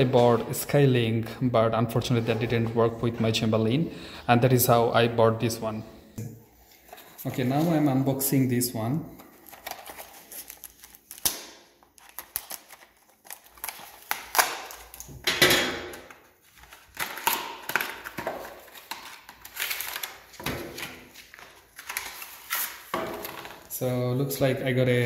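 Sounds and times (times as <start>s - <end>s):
packaging rustling and crinkling: 9.2s - 15.2s, 16.3s - 23.7s.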